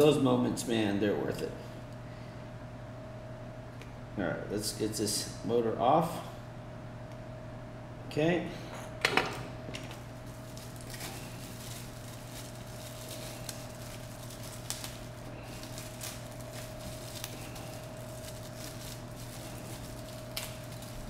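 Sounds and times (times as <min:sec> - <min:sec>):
steady hum: 0:00.0 - 0:21.0
plastic bag crinkling: 0:09.8 - 0:21.0.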